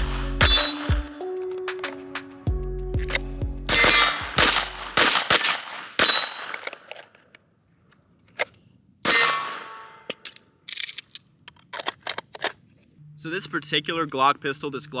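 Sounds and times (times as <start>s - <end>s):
steel targets ringing: 0.0s - 1.0s, 3.7s - 6.5s, 9.1s - 10.1s
pistol shots: 3.7s - 6.9s.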